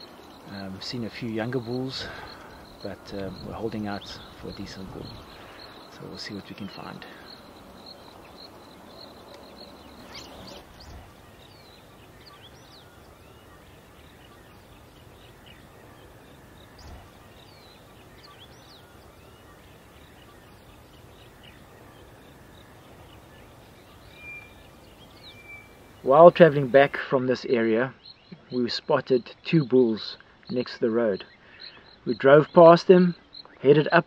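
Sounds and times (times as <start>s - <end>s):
thin steady high tone: 0.0s - 27.0s
faint steady background hiss: 0.0s - 34.0s
bird chirps and whistles: 23.9s - 26.0s.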